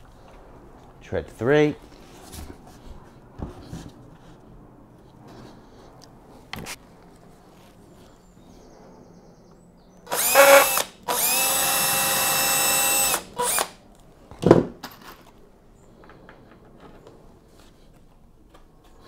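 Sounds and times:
cordless drill running: 10.1 - 13.8.

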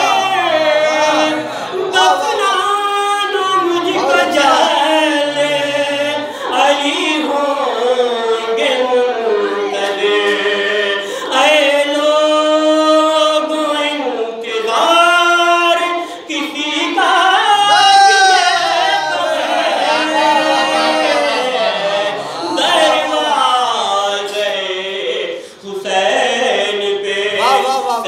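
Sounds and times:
man singing over pa: 25.0 - 28.0.

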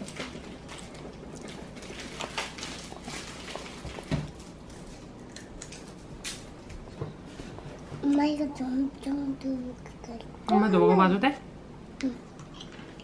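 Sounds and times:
eating clicks and crackles: 12.3 - 13.0.

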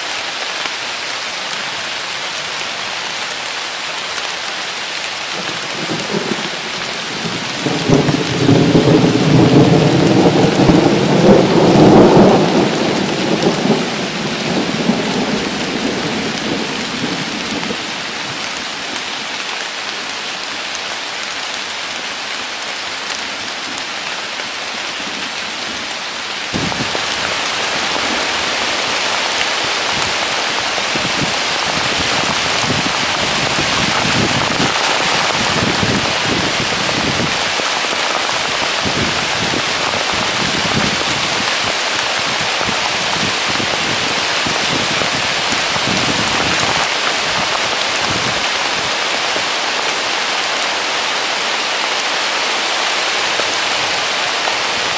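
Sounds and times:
heavy rain pouring: 0.0 - 54.9
rolling thunder: 5.4 - 18.5, 29.8 - 37.5.

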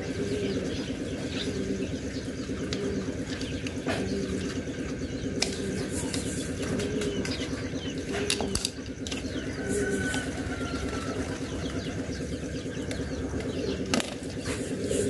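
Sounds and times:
pigeons cooing: 0.0 - 15.0
pulsing engine-like drone: 0.0 - 15.0.

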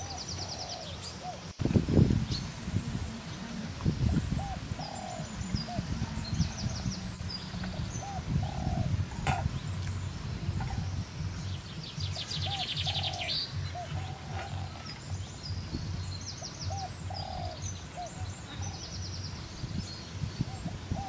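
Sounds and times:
bird low calls: 0.0 - 21.0
low background noise: 0.0 - 21.0
bird high chirps: 4.1 - 21.0.

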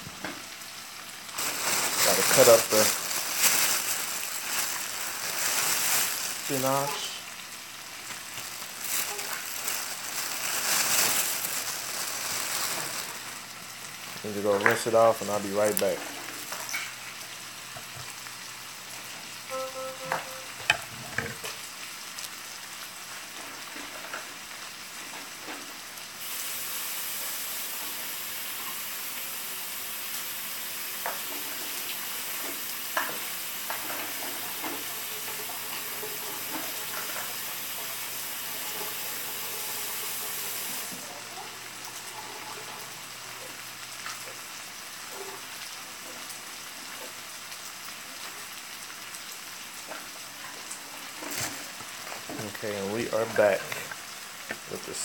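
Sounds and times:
food sizzling in a frying pan: 0.0 - 55.0
bright hiss: 1.4 - 7.3.

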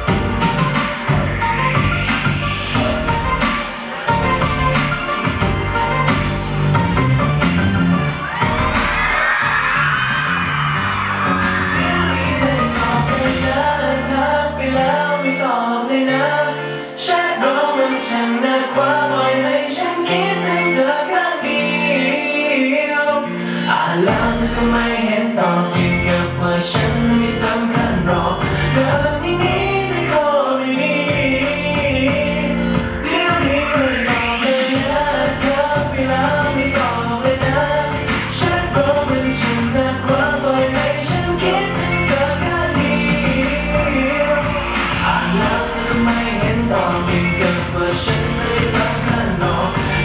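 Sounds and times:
steady drum beat: 0.0 - 13.6, 31.1 - 50.0
bass line: 0.0 - 14.7, 25.8 - 30.1, 31.1 - 34.1, 34.8 - 50.0
person singing: 0.0 - 50.0.

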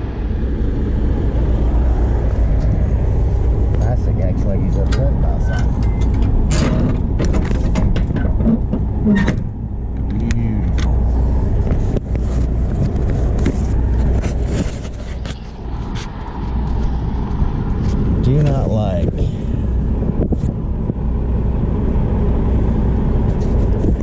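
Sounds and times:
truck engine idling: 0.0 - 24.0
metal doors clanking shut: 4.7 - 9.6.

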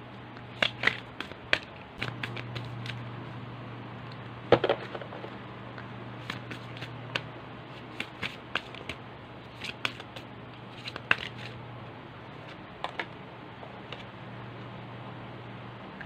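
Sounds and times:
low steady hum: 0.0 - 16.0
cards being shuffled: 0.5 - 3.0, 6.2 - 11.6.

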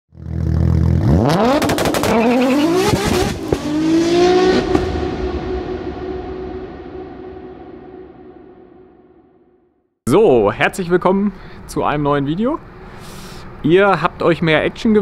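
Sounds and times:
car engine revving and accelerating: 0.2 - 7.1.

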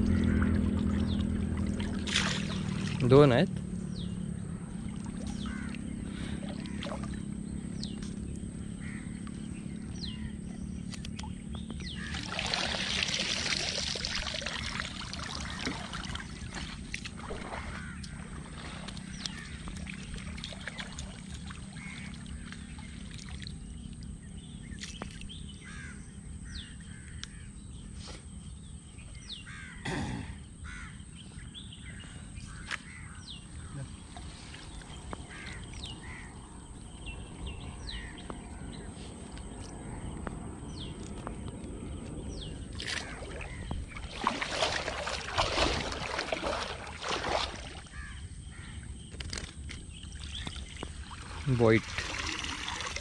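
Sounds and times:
water splashing and streaming: 0.0 - 25.7, 32.5 - 53.0
birds calling: 0.0 - 53.0
crow cawing: 5.4 - 6.9, 8.8 - 9.2, 17.5 - 19.7, 25.6 - 26.0, 29.4 - 29.9, 30.6 - 31.0, 35.2 - 36.4, 37.8 - 38.7, 47.9 - 48.8.

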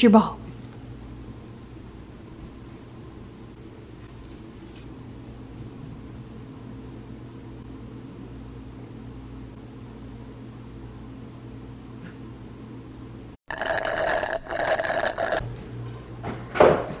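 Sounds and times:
household machinery hum: 0.0 - 16.5.

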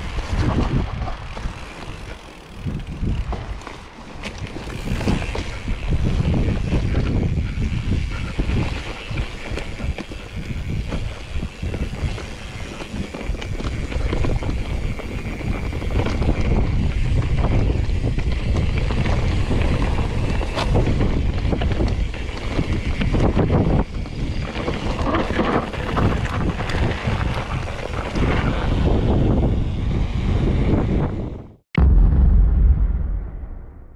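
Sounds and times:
bike rattling over rough ground: 0.0 - 31.4
wind buffeting microphone: 0.0 - 33.9.

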